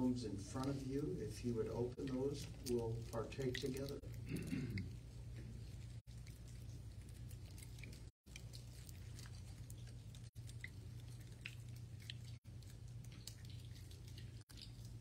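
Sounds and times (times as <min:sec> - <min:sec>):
steady low hum: 0:00.0 - 0:15.0
plastic cups crinkling and clicking: 0:02.0 - 0:04.3.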